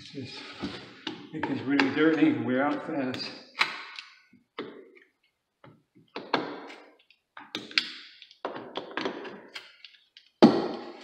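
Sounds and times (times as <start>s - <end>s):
metal-on-wood clicks and knocks: 7.4s - 9.5s.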